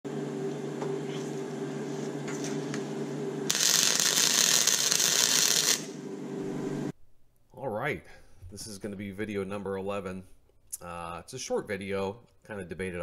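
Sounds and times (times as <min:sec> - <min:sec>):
welder humming: 0:00.1 - 0:07.0
welding arc crackling and hissing: 0:03.5 - 0:06.1.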